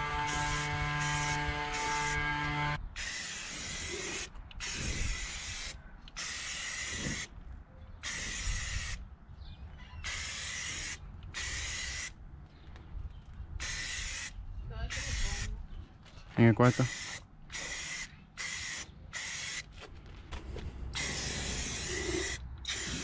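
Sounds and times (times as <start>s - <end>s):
aerosol spray can hissing: 21.0s - 23.0s.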